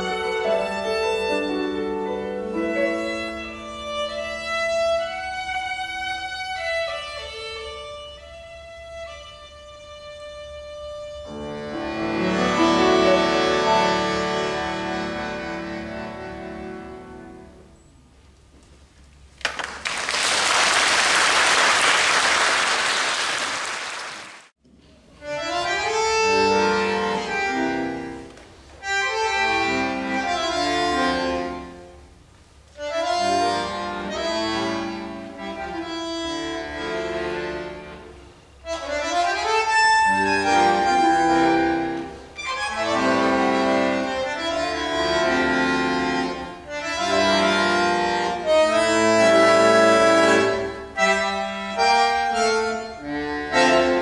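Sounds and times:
solo bandoneon playing: 0.0 - 17.6, 25.2 - 32.0, 32.8 - 54.0
violin piano and bandoneon trio: 0.0 - 17.7, 25.2 - 32.0, 32.7 - 54.0
audience applause: 19.4 - 24.5.

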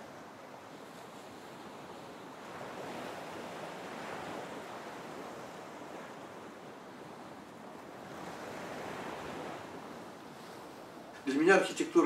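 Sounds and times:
waves breaking in shallows: 0.0 - 12.0.

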